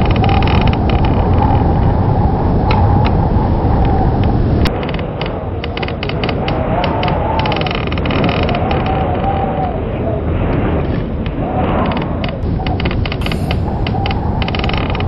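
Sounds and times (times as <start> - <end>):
clicks and crackles: 0.0 - 1.9, 3.8 - 9.7, 10.5 - 15.0
howling blizzard wind: 0.0 - 15.0.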